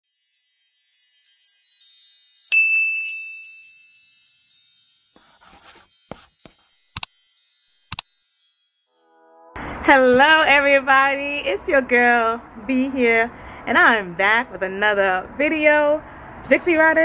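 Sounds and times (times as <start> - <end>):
high tinkling chimes: 0.0 - 9.4
bright bell-like ding: 2.5 - 3.6.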